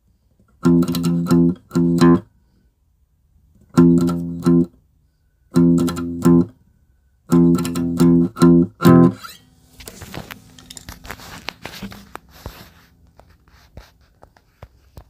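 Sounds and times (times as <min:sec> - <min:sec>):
loud guitar chords: 0:00.6 - 0:02.2, 0:03.7 - 0:04.7, 0:05.5 - 0:06.5, 0:07.3 - 0:09.2
faint clicks and crackle: 0:09.8 - 0:15.0.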